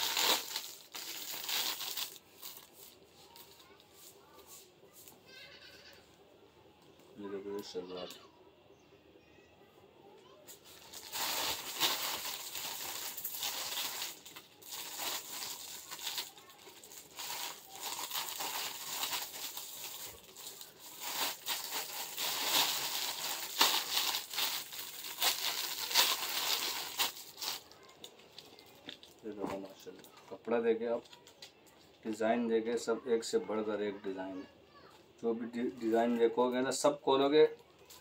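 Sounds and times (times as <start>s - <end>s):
plastic bags crinkling: 0.0s - 3.9s, 10.6s - 30.2s.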